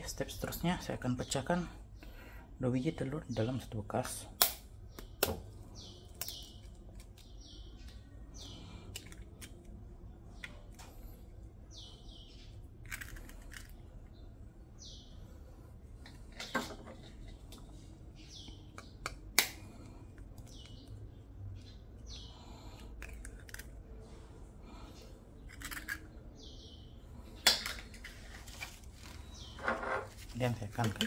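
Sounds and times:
small birds chirping: 0:00.0 - 0:31.0
eggshells cracking: 0:06.0 - 0:09.8, 0:12.7 - 0:13.9, 0:22.7 - 0:23.8, 0:25.5 - 0:26.1.

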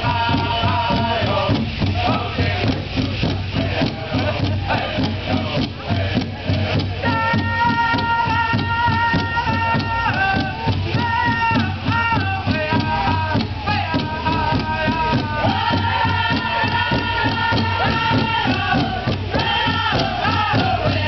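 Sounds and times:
group singing in high voices: 0:00.0 - 0:21.0
large drum steady beat: 0:00.0 - 0:21.0.

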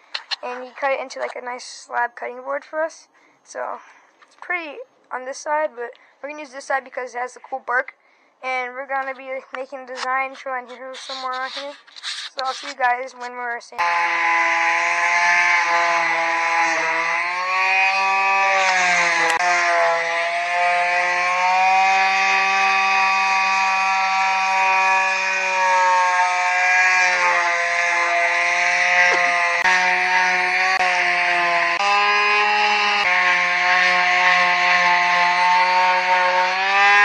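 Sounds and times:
sandpaper hissing on wood: 0:10.4 - 0:12.8
palm sander motor hum: 0:13.8 - 0:37.0.

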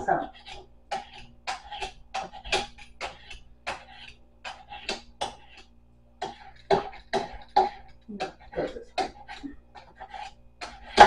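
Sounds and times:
vegetable peeler scraping: 0:00.0 - 0:11.0.

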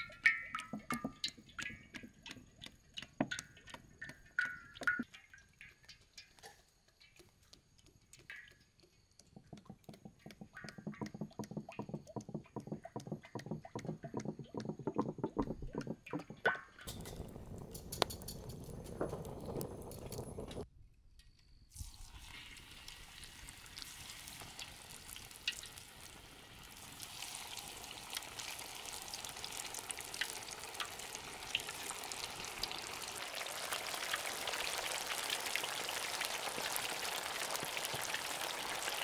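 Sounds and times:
jug glugging: 0:00.0 - 0:05.0, 0:09.4 - 0:18.4
oil splattering on metal wok: 0:00.0 - 0:07.3, 0:21.7 - 0:39.0
wood fire crackling: 0:15.8 - 0:20.7, 0:21.8 - 0:39.0.

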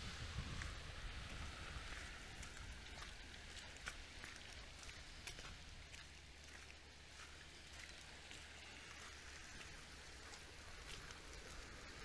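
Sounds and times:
low steady rumble: 0:00.0 - 0:12.0
water trickling among rocks: 0:00.0 - 0:12.0.

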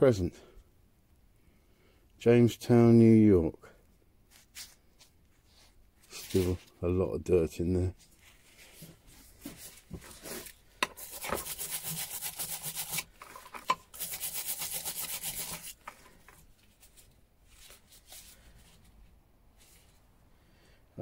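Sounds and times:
brush scrubbing metal wrench: 0:10.8 - 0:16.4.

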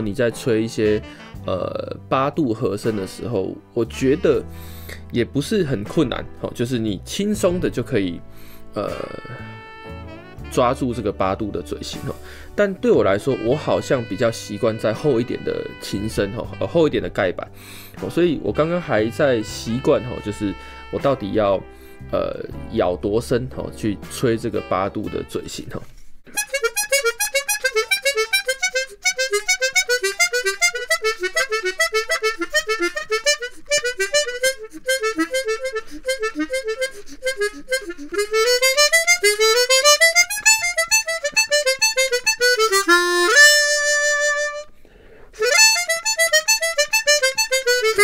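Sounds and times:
harmonica playing: 0:00.8 - 0:02.0, 0:02.8 - 0:05.0, 0:08.4 - 0:11.4, 0:13.0 - 0:22.5, 0:26.3 - 0:48.0.

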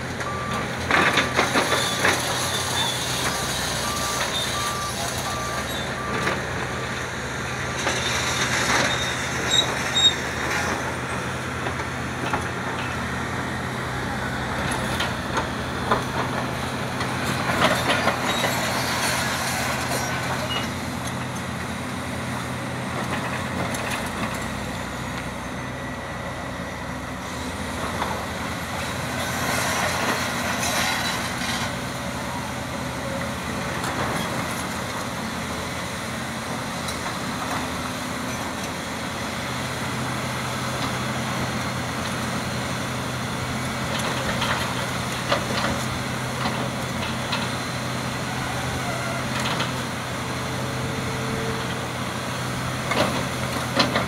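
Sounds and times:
diesel excavator engine running: 0:00.0 - 0:54.0
steel scraping and clattering on rock: 0:29.8 - 0:31.8.

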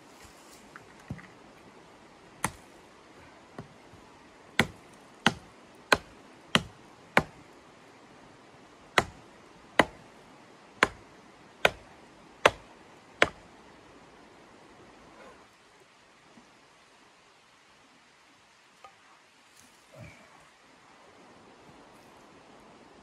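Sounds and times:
hatchet chopping wood: 0:02.4 - 0:02.7, 0:04.6 - 0:07.4, 0:09.0 - 0:10.1, 0:10.8 - 0:13.4.

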